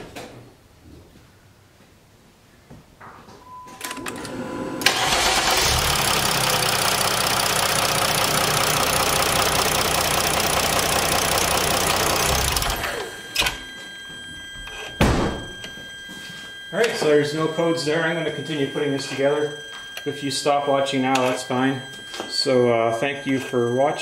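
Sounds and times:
diesel engine clattering: 4.9 - 12.8.

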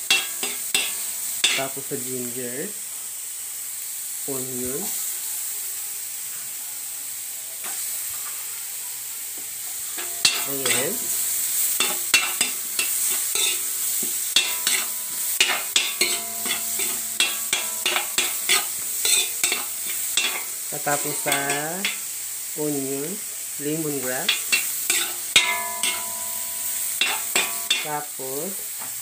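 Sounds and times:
metal spoon scraping a pan: 0.0 - 1.9, 9.9 - 22.1, 23.9 - 28.0
food sizzling in a wok: 0.0 - 29.0.

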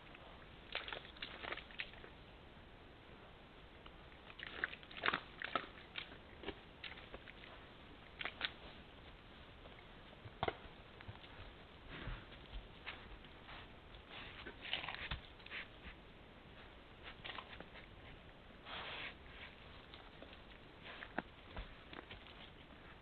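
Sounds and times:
faint steady hiss: 0.0 - 23.0.

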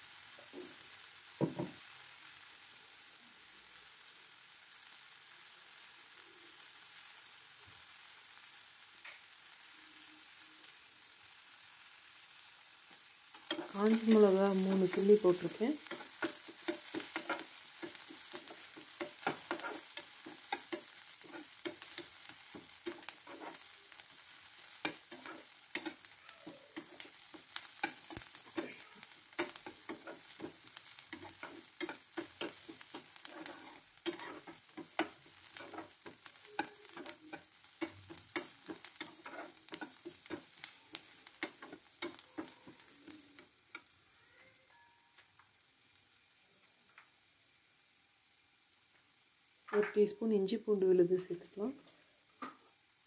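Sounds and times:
food sizzling in hot oil: 0.0 - 53.0
metal spatula scraping a pan: 13.3 - 43.0.

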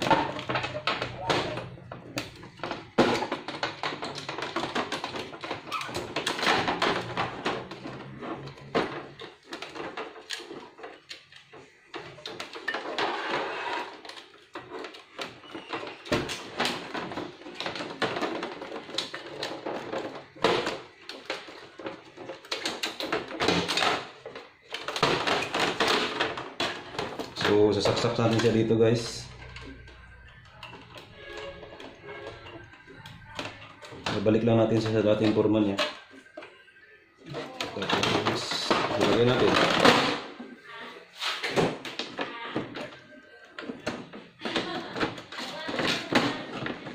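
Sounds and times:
plastic printer parts clicking and rattling: 0.0 - 40.6, 41.2 - 46.9.

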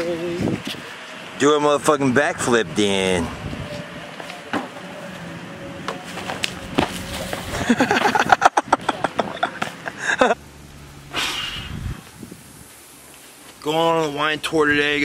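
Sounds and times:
low steady hum: 5.9 - 15.0.

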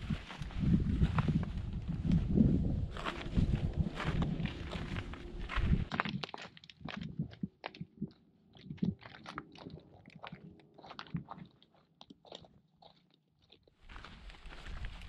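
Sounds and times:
footsteps crunching on gravel: 0.1 - 6.6, 13.8 - 15.0.

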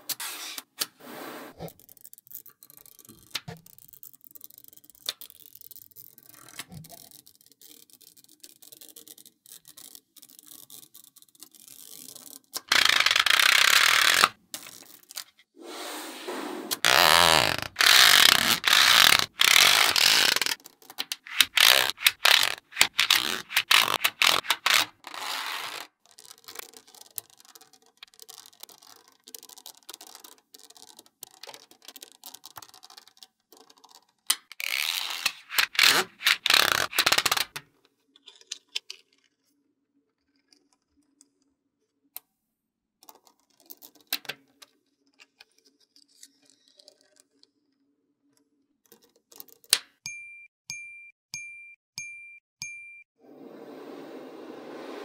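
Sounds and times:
magnetic balls scraping and clicking: 1.6 - 15.4, 16.7 - 37.6
paper rustling: 17.4 - 37.6.

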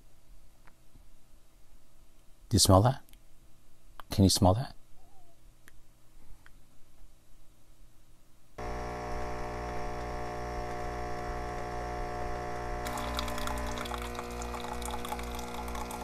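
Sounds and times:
coffee machine pump humming: 8.6 - 16.0
coffee streaming into mug: 8.6 - 16.0
crackling hiss: 8.6 - 16.0.

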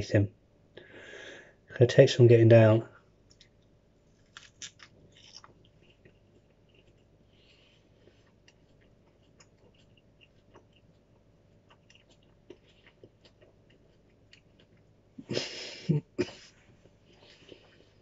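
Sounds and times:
wet chewing clicks: 4.3 - 7.2, 8.0 - 14.9.

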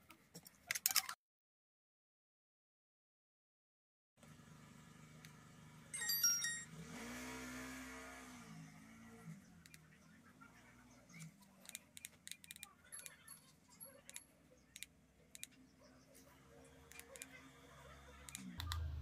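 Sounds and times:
phone startup tone: 6.0 - 6.8
low hum: 18.1 - 19.0.

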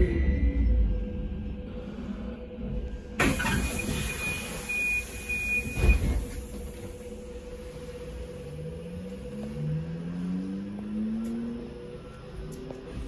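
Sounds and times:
steady hum and low rumble: 0.0 - 4.3
high beep: 3.4 - 6.1.

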